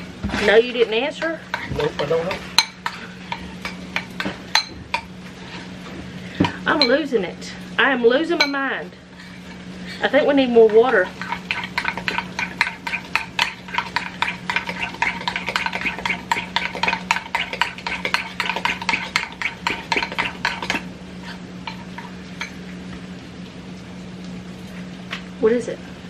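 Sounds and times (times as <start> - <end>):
utensil scraping a pot: 8.4 - 22.5.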